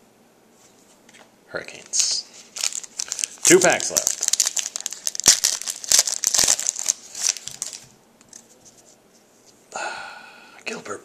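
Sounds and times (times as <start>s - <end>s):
foil wrapper tearing and crinkling: 2.0s - 8.4s.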